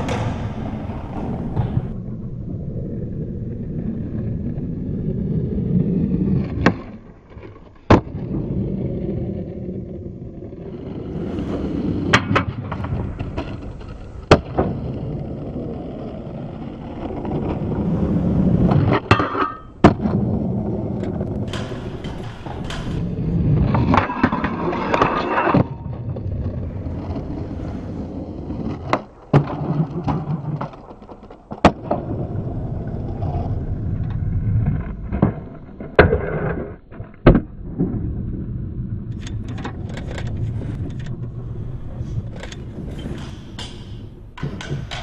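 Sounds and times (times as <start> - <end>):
skateboard popping and landing clacks: 0.0 - 2.0, 6.2 - 38.2, 39.1 - 45.0
skateboard wheels rolling on concrete: 0.0 - 45.0.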